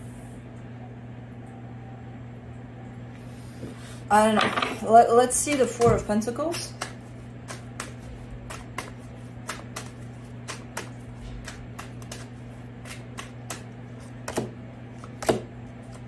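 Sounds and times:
cards shuffled by hand: 6.7 - 16.0.

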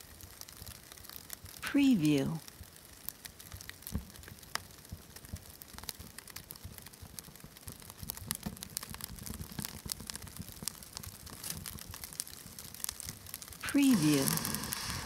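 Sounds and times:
low rumble of flames: 0.0 - 1.7, 2.3 - 15.0
wood fire crackling and popping: 0.0 - 15.0.

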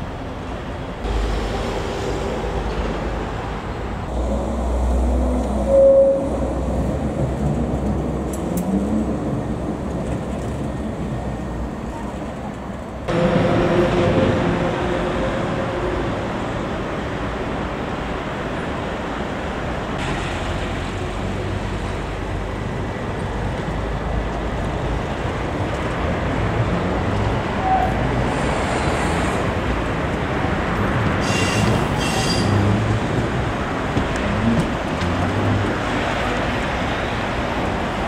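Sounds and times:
tram wheels rumbling on rail: 0.0 - 38.0
high-pitched wheel squeals: 5.3 - 6.6, 31.2 - 32.7.

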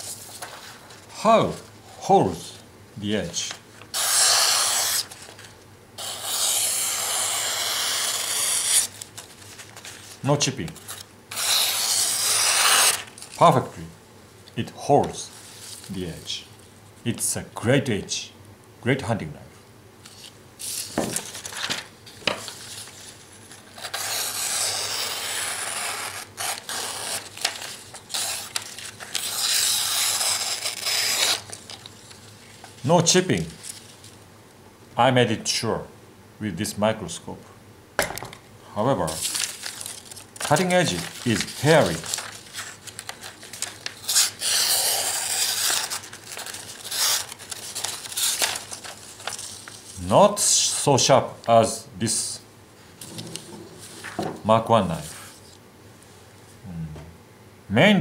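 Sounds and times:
knife slicing paper: 3.9 - 5.4, 6.0 - 9.9, 10.7 - 13.4, 23.8 - 32.2, 39.1 - 50.0.

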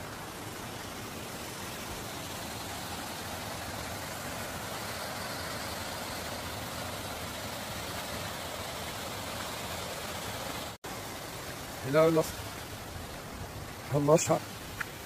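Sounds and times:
waterfall rushing over rocks: 0.0 - 15.0.

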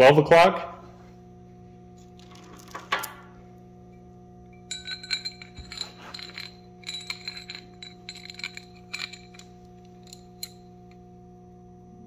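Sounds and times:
metal parts clinking: 2.0 - 3.2, 4.6 - 11.0.

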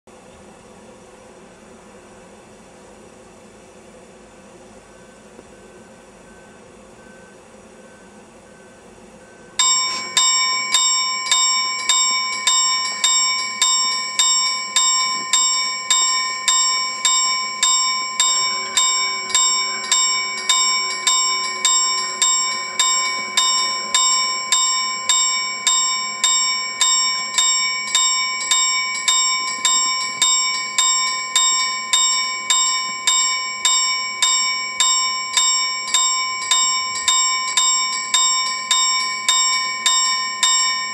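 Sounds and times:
level crossing warning bell: 8.6 - 40.9.

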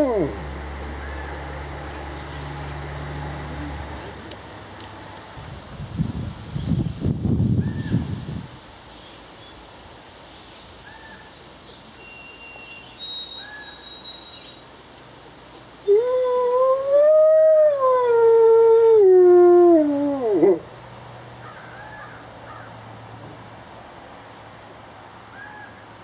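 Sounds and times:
wolf howling: 0.0 - 0.5.

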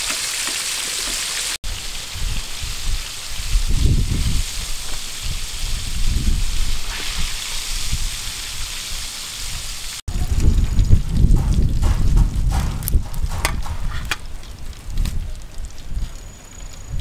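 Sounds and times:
hot oil sizzling: 0.0 - 17.0
low rumble: 10.1 - 15.8.

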